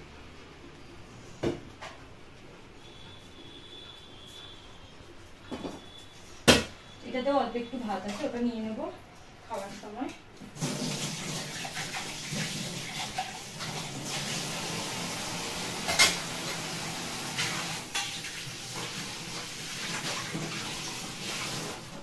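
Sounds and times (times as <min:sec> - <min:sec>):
dishes clattering: 0:15.8 - 0:16.4.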